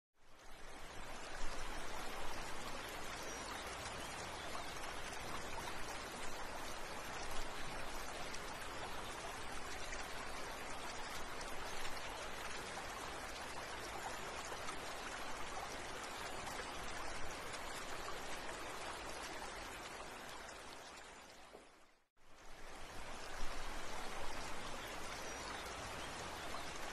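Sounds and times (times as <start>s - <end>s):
rushing pattering water: 0.2s - 26.9s.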